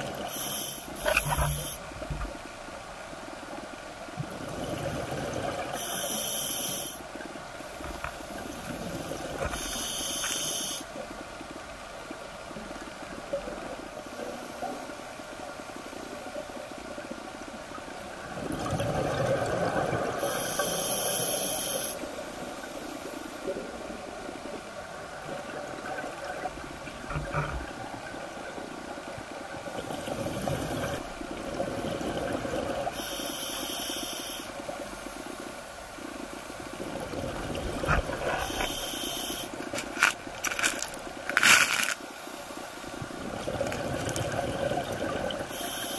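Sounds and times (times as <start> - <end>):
regulator hissing inhalations: 0.3 - 1.8, 5.8 - 7.0, 9.5 - 10.9, 20.2 - 22.0, 33.0 - 34.6, 38.4 - 39.6, 45.5 - 45.9.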